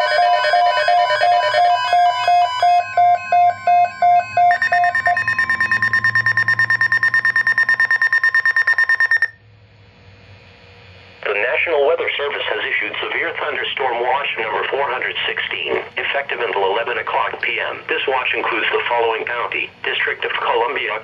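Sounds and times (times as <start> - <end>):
fast high-pitched beeping: 0.0 - 9.4
pulsed alarm beeps: 0.0 - 9.4.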